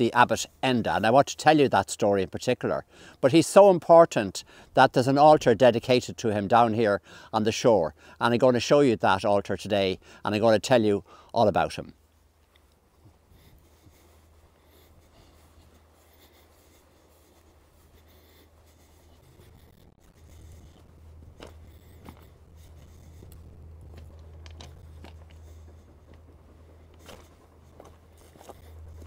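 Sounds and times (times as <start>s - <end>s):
footsteps rustling on grass: 12.0s - 29.0s.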